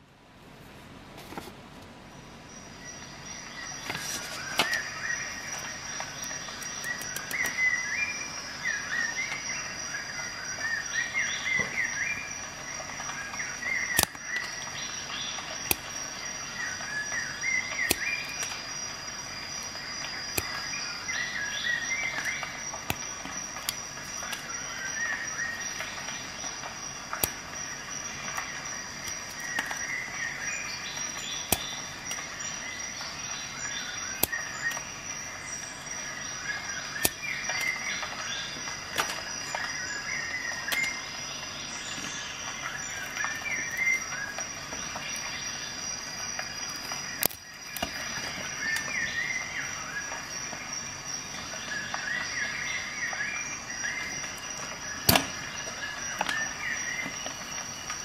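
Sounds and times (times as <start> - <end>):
high insect drone: 2.1 - 58.0
bird chirps: 2.4 - 58.0
sharp clicks: 5.4 - 7.7, 13.8 - 16.0, 17.4 - 18.7, 19.6 - 27.6, 30.8 - 32.3, 36.8 - 39.7, 46.3 - 49.1.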